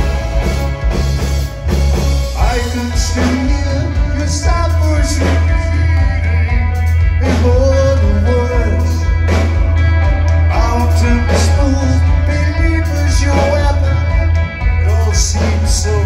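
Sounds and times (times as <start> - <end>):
live rock band playing: 0.0 - 16.0
man singing: 2.3 - 9.4, 10.5 - 16.0.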